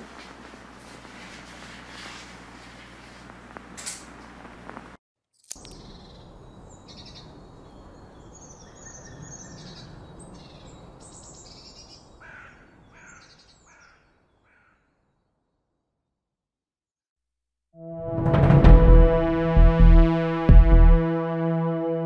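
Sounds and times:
outdoor background noise: 0.0s - 14.6s
bird chirps: 5.6s - 14.4s.

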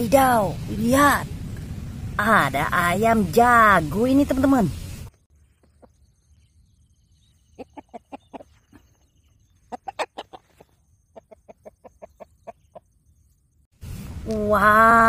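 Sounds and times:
rooster clucking: 7.5s - 8.9s, 9.6s - 12.8s.

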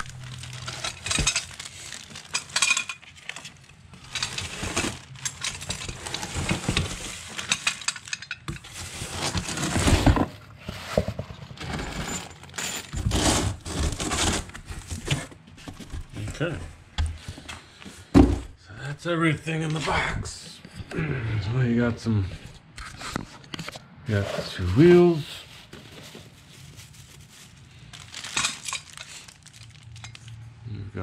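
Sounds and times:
plastic bags and cardboard crinkling: 0.0s - 16.6s, 24.4s - 30.5s
metal brackets and bolts clinking: 0.3s - 8.7s, 28.3s - 29.2s
dull thumps of parts set down: 18.1s - 18.6s.

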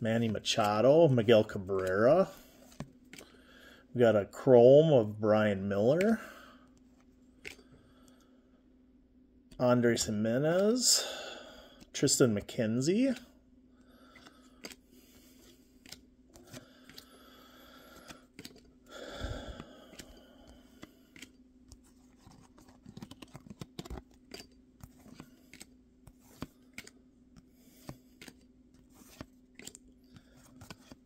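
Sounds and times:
faint steady hum: 0.0s - 31.0s
cards clicking and sliding: 0.2s - 3.5s, 6.9s - 7.8s, 14.0s - 31.0s
card rustle: 19.6s - 31.0s.

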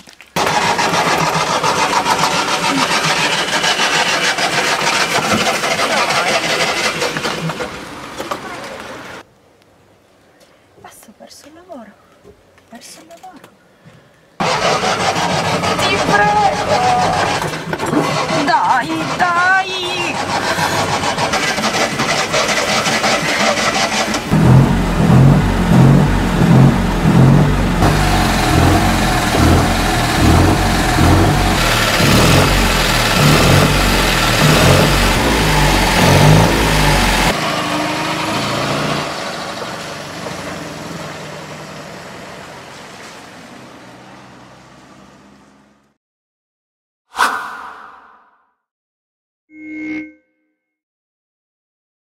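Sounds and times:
car engine revving: 0.4s - 8.0s, 14.4s - 41.9s.

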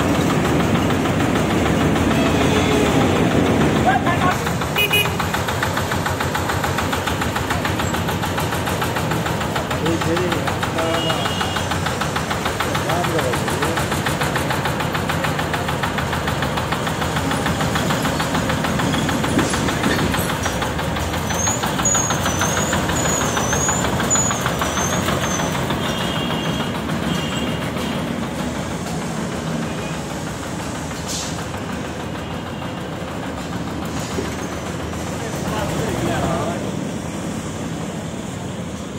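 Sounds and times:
threshing machine engine running: 0.0s - 38.9s.

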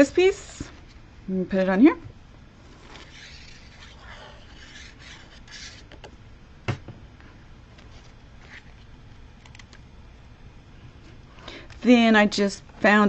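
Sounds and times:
paper and card sliding: 2.7s - 6.0s.

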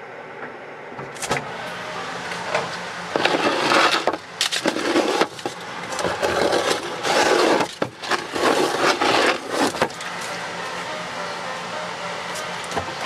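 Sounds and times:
scraping and rustling: 3.1s - 10.4s.

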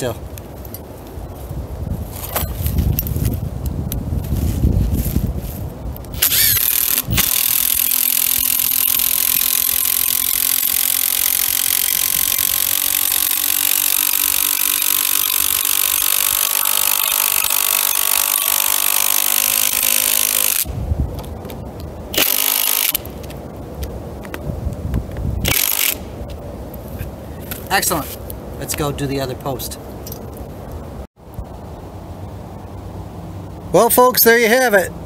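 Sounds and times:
cordless drill driving screw: 6.2s - 20.7s, 22.2s - 23.1s, 25.5s - 26.0s.

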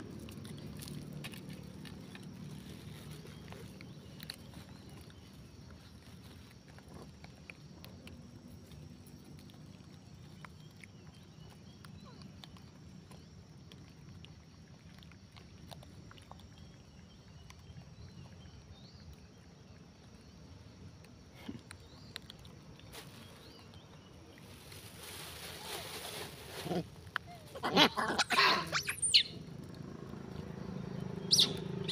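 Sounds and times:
clicks and rustles in dry grass: 0.0s - 11.0s, 21.8s - 27.6s
high chirps: 28.3s - 29.5s, 31.2s - 31.9s
low steady rumble: 28.4s - 31.9s.

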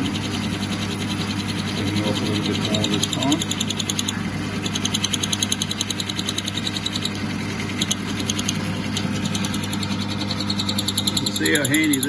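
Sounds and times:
lathe motor hum: 0.0s - 12.0s
rapid even ticking of cutter: 0.0s - 12.0s.

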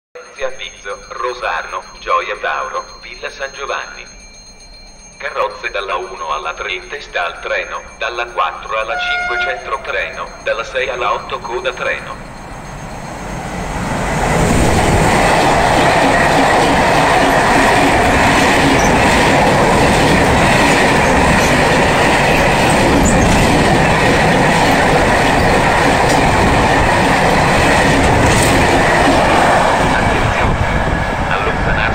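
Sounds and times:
freight train wheels clattering: 12.2s - 31.9s.

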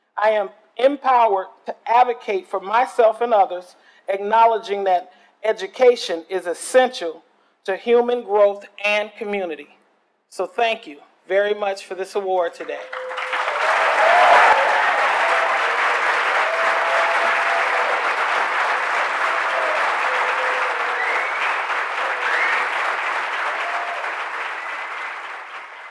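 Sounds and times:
audience applauding: 12.8s - 25.9s.

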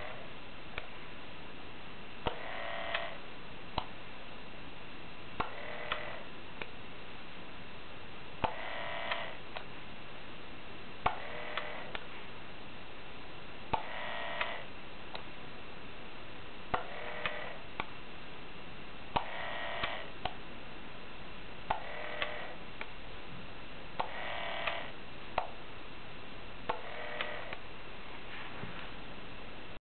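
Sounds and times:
small motor buzzing: 2.3s - 3.2s, 5.4s - 6.3s, 8.4s - 9.4s, 11.1s - 12.0s, 13.8s - 14.7s, 16.8s - 17.7s, 19.2s - 20.1s, 21.7s - 22.6s, 24.0s - 25.0s, 26.7s - 27.6s.

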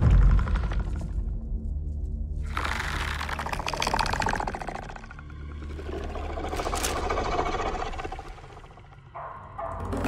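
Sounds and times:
low musical drone: 1.3s - 10.0s
pulsing rattling growl: 2.4s - 9.2s.

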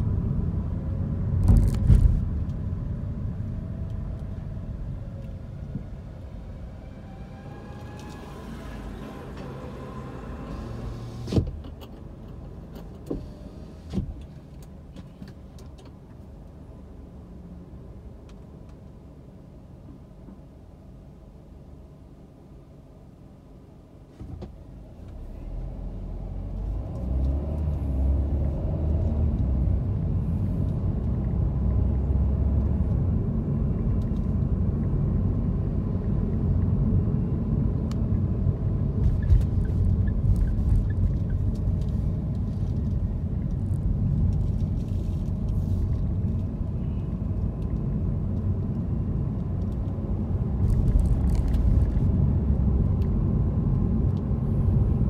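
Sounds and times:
car engine and tyre rumble: 0.0s - 55.0s.

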